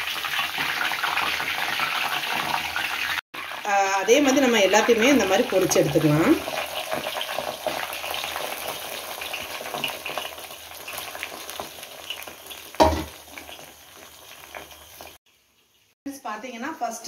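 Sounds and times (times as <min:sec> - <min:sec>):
food deep-frying in oil: 0:00.0 - 0:17.0
knock: 0:12.8 - 0:13.1.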